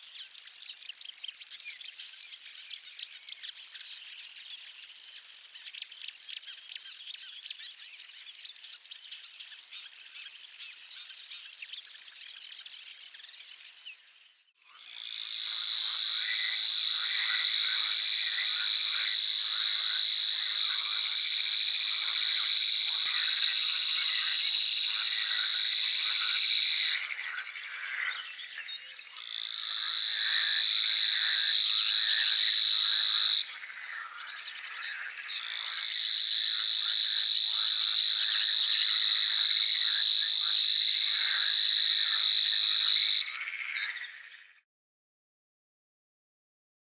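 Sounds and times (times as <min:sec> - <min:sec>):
warbler high-pitched trills: 0:00.0 - 0:15.0
birds chirping: 0:00.0 - 0:44.5.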